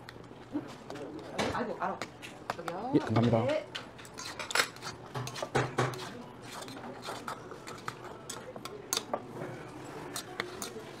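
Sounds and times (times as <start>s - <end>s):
chopsticks clinking in metal bowl: 10.1s - 11.0s.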